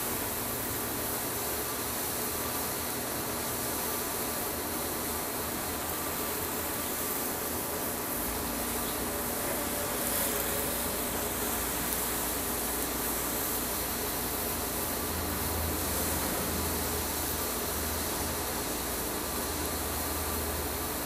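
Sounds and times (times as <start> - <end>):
food sizzling in a wok: 0.0 - 21.0.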